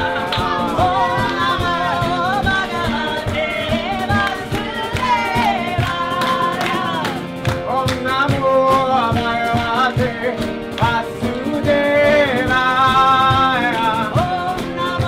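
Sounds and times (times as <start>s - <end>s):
voices singing a devotional chant: 0.0s - 7.3s
acoustic guitar: 0.0s - 15.0s
percussion beat: 0.0s - 15.0s.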